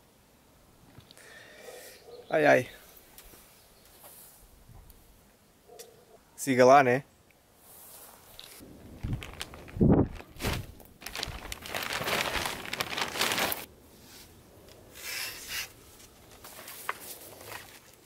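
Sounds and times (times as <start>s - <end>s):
soft rustles: 7.7s - 14.4s
plastic sheet crinkling: 8.4s - 13.7s, 16.2s - 18.0s.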